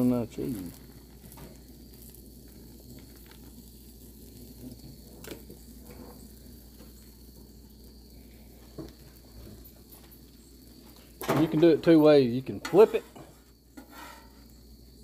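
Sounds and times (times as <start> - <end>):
food sizzling on griddle: 0.0 - 15.0
night insects droning: 0.0 - 15.0.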